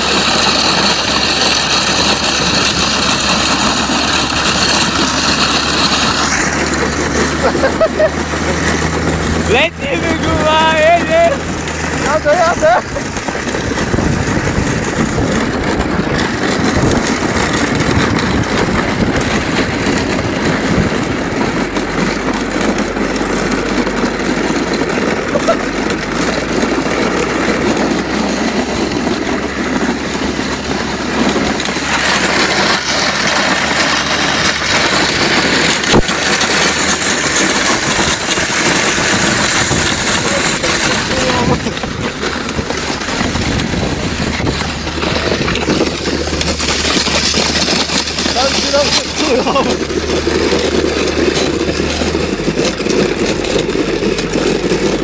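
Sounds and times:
car engine running: 0:00.0 - 0:55.0
wooden boards scraping on asphalt: 0:00.0 - 0:55.0.

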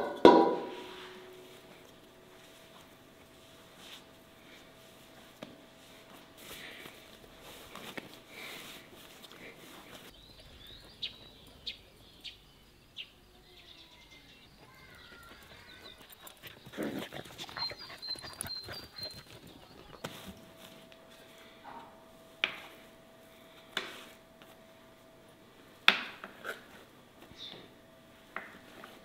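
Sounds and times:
dog whining: 0:15.0 - 0:20.0.

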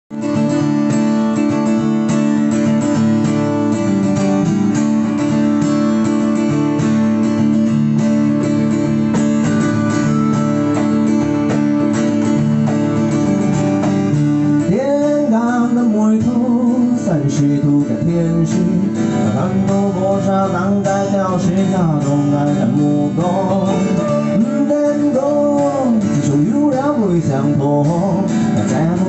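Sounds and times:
live band playing: 0:00.1 - 0:16.5
strummed acoustic guitar: 0:00.1 - 0:29.0
man singing: 0:14.6 - 0:29.0.

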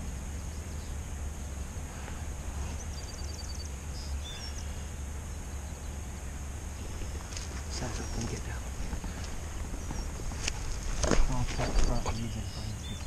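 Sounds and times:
low rumble and hiss: 0:00.0 - 0:13.0
small bird trilling: 0:02.7 - 0:04.9.

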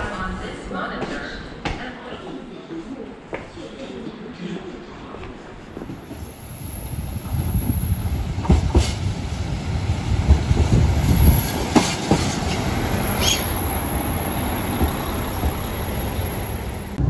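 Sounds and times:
train rumbling: 0:05.6 - 0:17.0
wheels clacking over rail joints: 0:10.2 - 0:13.8
wheel squeal: 0:12.5 - 0:15.1.

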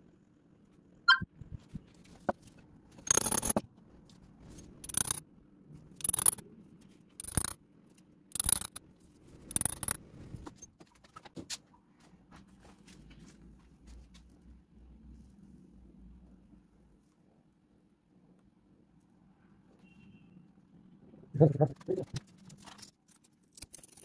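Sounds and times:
metal pin scraping in sand: 0:04.6 - 0:05.2, 0:06.0 - 0:06.4, 0:07.2 - 0:07.6, 0:08.3 - 0:08.8, 0:09.4 - 0:10.0.

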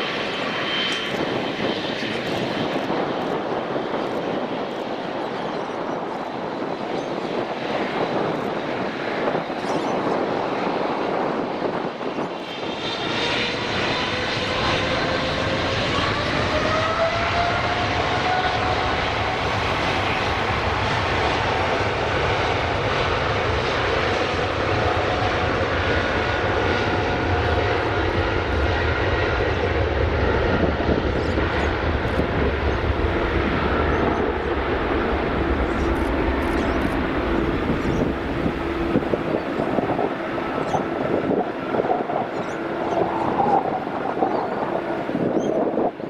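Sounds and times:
jet engines spooling up: 0:11.5 - 0:46.0.

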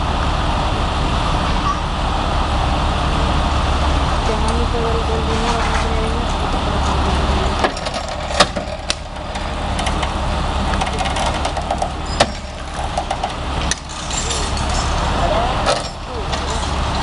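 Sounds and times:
truck engine idling: 0:00.0 - 0:17.0
winch cable dragging car: 0:00.0 - 0:17.0
clicks and knocks from car body: 0:07.6 - 0:10.1.

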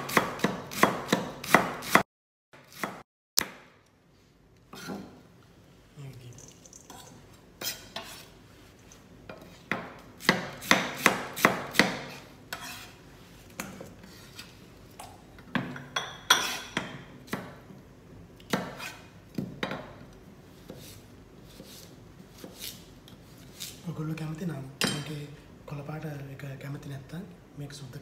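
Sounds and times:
knife chopping on plastic board: 0:00.0 - 0:02.0, 0:09.7 - 0:12.2.

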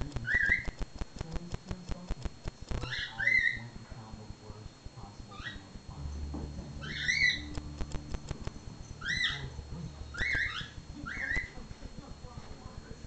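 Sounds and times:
sharp clicks: 0:00.1 - 0:03.0.

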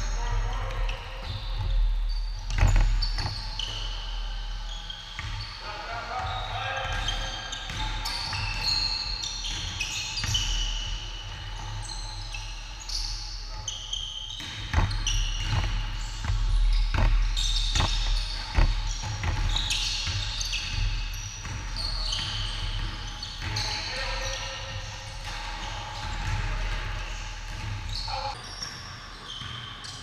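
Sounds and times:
sneakers squeaking on hardwood: 0:00.0 - 0:30.0
basketball bouncing: 0:00.6 - 0:03.8, 0:14.4 - 0:23.7, 0:25.2 - 0:28.8.

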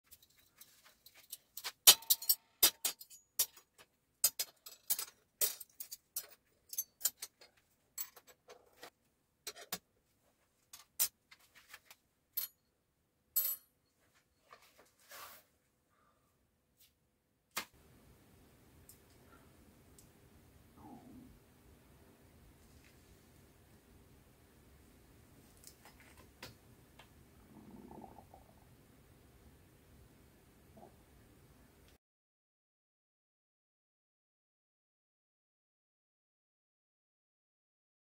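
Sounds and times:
spoons clinking on steel table: 0:00.1 - 0:08.3.

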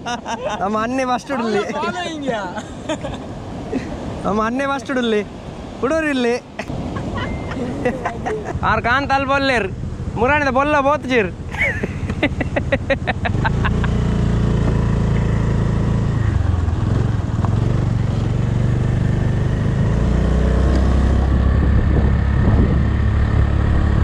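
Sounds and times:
heavy low rumble: 0:21.2 - 0:24.0.

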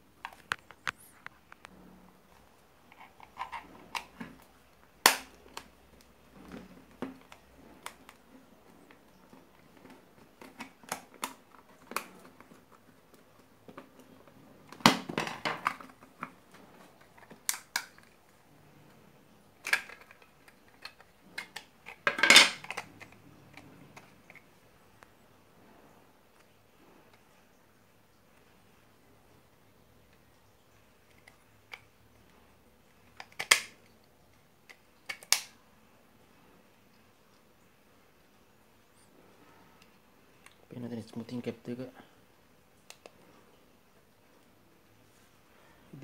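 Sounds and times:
plastic case clicking and snapping: 0:05.0 - 0:05.7, 0:17.0 - 0:18.2, 0:19.6 - 0:24.4, 0:33.1 - 0:33.8, 0:34.7 - 0:35.5.

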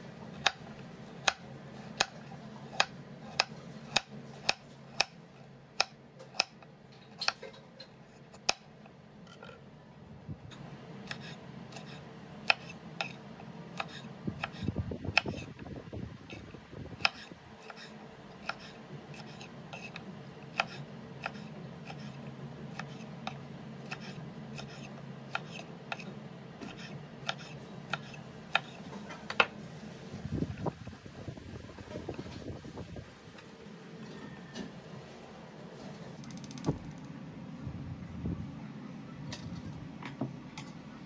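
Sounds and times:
steady low hum: 0:00.0 - 0:41.0
knife chopping on cutting board: 0:02.0 - 0:05.2, 0:13.8 - 0:15.5, 0:17.0 - 0:28.8.

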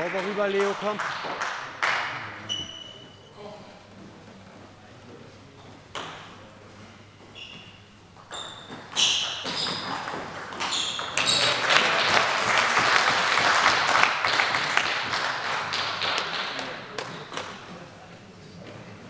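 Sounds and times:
people clapping: 0:00.0 - 0:02.5, 0:09.9 - 0:17.5
table tennis ball hits: 0:08.2 - 0:11.6.

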